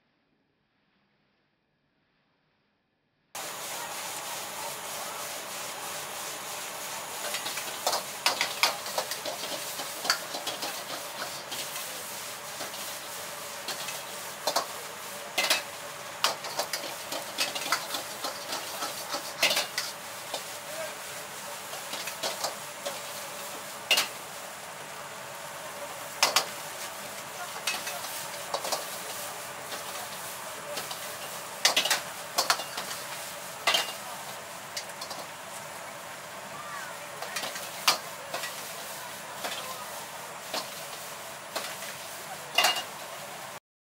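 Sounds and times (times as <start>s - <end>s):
rice sizzling in a wok: 3.4s - 43.6s
metal ladle clanking on wok: 31.6s - 33.0s, 33.6s - 34.0s, 42.5s - 43.0s.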